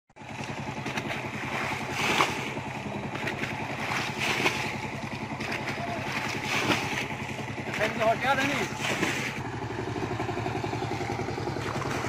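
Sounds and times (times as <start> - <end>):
small engine chugging: 0.2 - 12.0.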